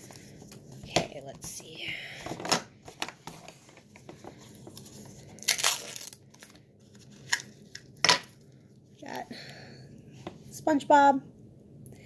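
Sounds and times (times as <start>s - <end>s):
plastic wrapping crinkling and tearing: 2.9s - 8.0s.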